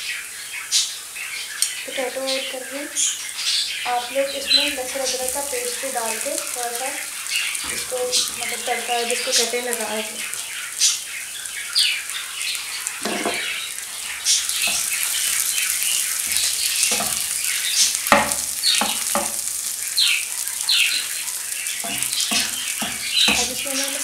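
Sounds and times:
onions and potato sizzling: 0.0s - 24.0s
wooden spatula scraping pan: 13.0s - 13.7s, 16.2s - 17.4s.

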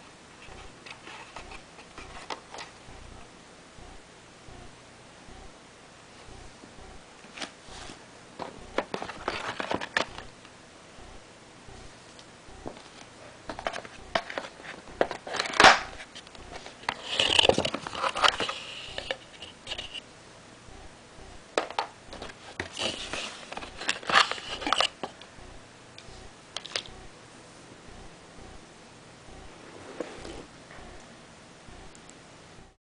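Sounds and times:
packaging rustling and crinkling: 8.8s - 10.2s.

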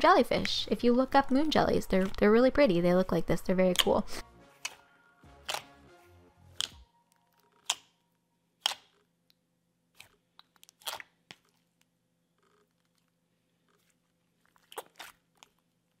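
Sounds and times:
slime wet pops and squelches: 5.4s - 5.7s.

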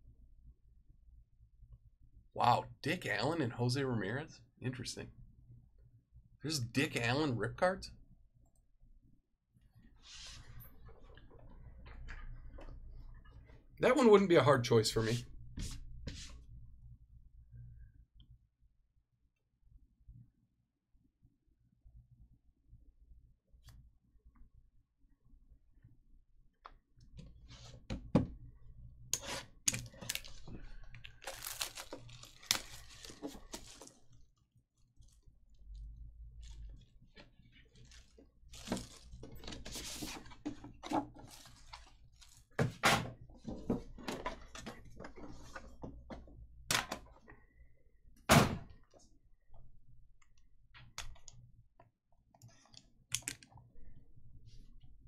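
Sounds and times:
plastic wrap crinkling: 29.8s - 34.2s, 36.4s - 40.1s, 41.2s - 42.6s.

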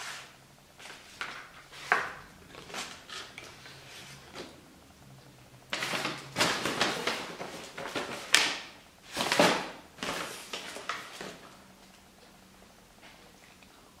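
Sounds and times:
paper bag rustling and crinkling: 0.0s - 4.5s, 5.7s - 11.5s.

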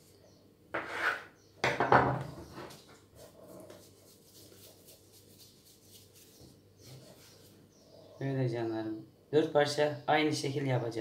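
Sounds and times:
knife scraping countertop: 0.7s - 3.9s
hands rubbing dough: 2.7s - 7.7s.

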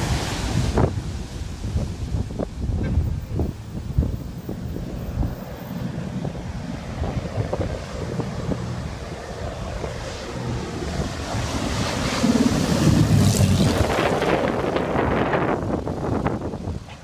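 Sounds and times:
surf washing: 0.0s - 17.0s
wind buffeting microphone: 0.0s - 17.0s
propeller plane passing overhead: 3.4s - 16.8s.

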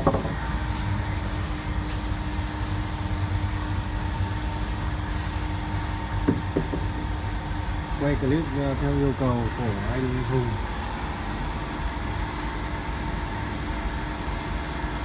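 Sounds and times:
mechanical hum with low rumble: 0.0s - 15.0s
short knocks: 6.3s - 6.9s.

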